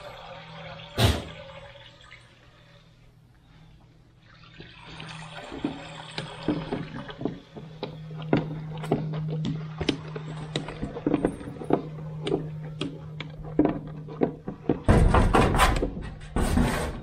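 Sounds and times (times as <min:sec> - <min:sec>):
low steady hum: 0:00.0 - 0:17.0
milk squirting into metal pail: 0:04.3 - 0:14.8.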